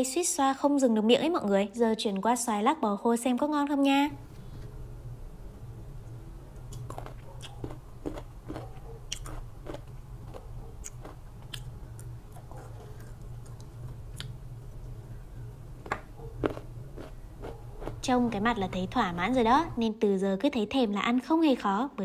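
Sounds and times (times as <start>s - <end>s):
low steady hum: 0.0s - 22.0s
chewing and crunching: 6.6s - 15.0s, 15.8s - 18.2s.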